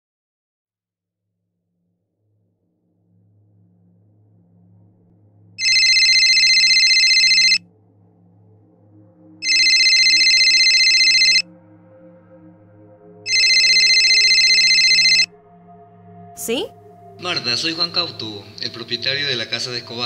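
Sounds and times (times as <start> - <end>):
faint soft music: 2.3 - 20.0
telephone warbling ring: 5.6 - 7.6, 9.4 - 11.4, 13.3 - 15.3.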